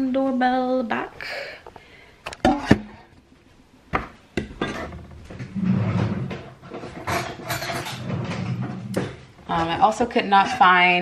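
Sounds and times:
rummaging through kitchen drawer: 4.6 - 11.0.

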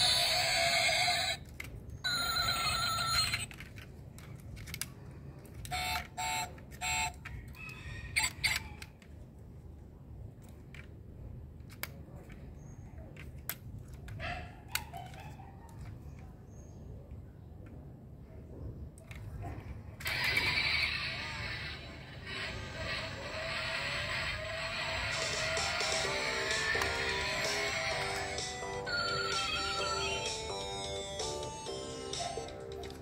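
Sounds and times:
toy car clicks and taps: 0.0 - 9.3, 10.4 - 16.3
toy car doors clicking open: 0.0 - 9.3, 20.0 - 21.4.

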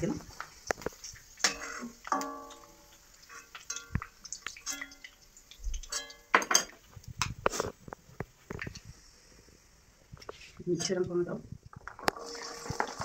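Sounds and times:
spoon clinking against wok: 1.4 - 3.0, 5.9 - 6.8.

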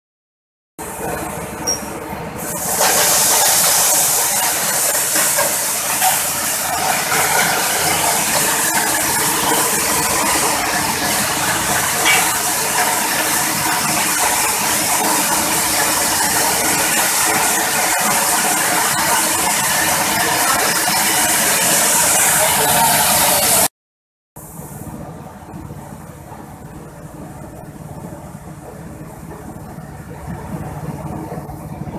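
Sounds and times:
small petrol engine droning: 0.8 - 23.7, 24.4 - 31.9
coffee huller rushing hiss: 2.4 - 19.3.

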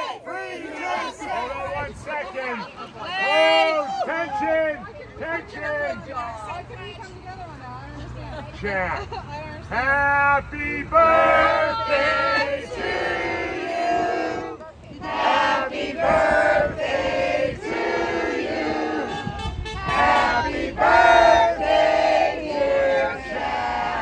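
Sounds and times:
crowd singing long held notes: 0.0 - 1.5, 10.2 - 24.0.

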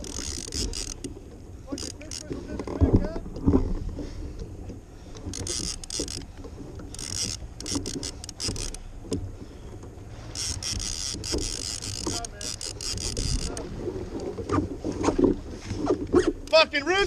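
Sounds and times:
fishing reel clicking: 0.0 - 1.1, 1.7 - 2.8, 5.2 - 8.8, 10.3 - 13.6
wind rumble on microphone: 2.2 - 4.9, 12.8 - 16.4.

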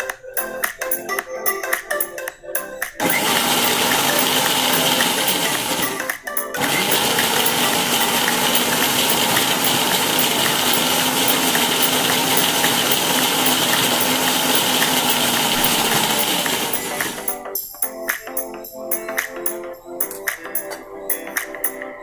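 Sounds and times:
mixer grinder motor running: 3.0 - 17.3.

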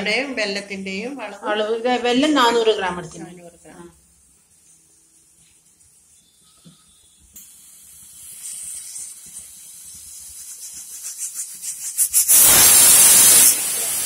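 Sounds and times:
pressure cooker valve hissing: 7.3 - 14.0.

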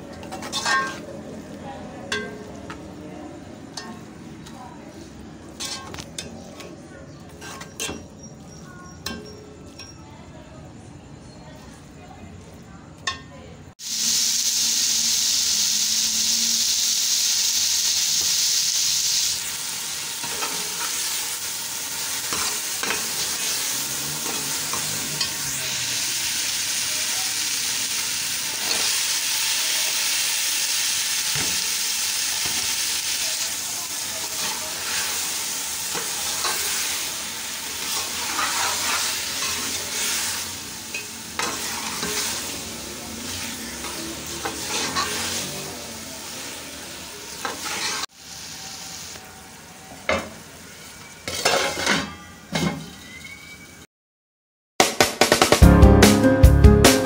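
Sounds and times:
leaves sizzling in oil: 0.0 - 9.8, 13.7 - 53.8
metal spoon scraping a pot: 0.2 - 1.1, 5.5 - 10.0, 22.2 - 25.4, 37.8 - 40.2, 40.9 - 42.5, 44.4 - 45.5, 47.4 - 48.0, 51.3 - 53.1.

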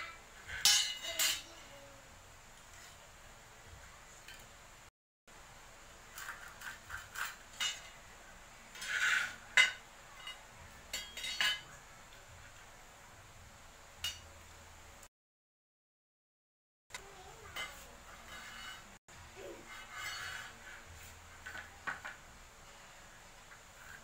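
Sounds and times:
metal scraping on wood: 6.1 - 8.0, 8.7 - 10.4, 17.5 - 21.8.

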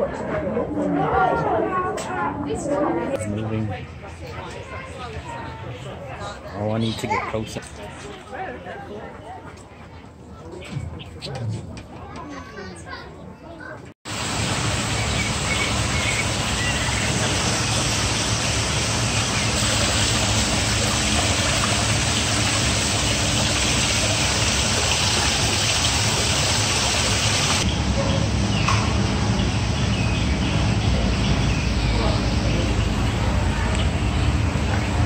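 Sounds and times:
small waterfall rushing: 14.1 - 27.7.

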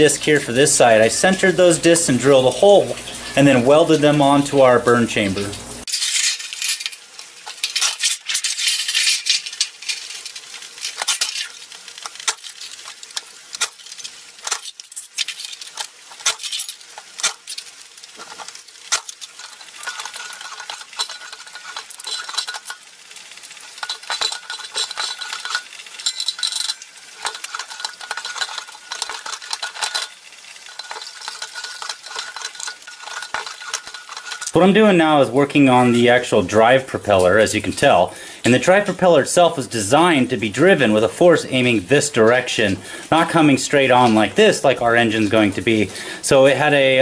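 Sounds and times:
sheet metal rattling and scraping: 5.9 - 34.7.

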